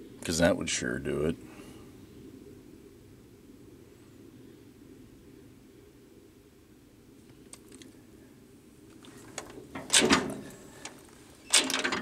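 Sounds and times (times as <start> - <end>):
metallic clanking and ratcheting: 9.4 - 12.0.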